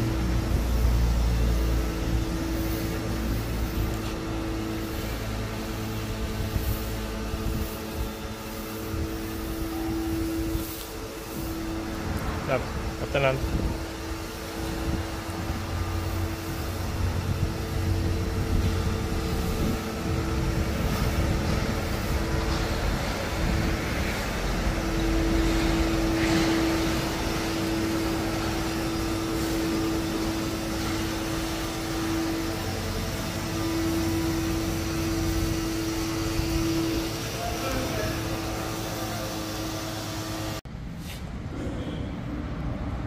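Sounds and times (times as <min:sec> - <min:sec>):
machinery drone: 0:00.0 - 0:40.7.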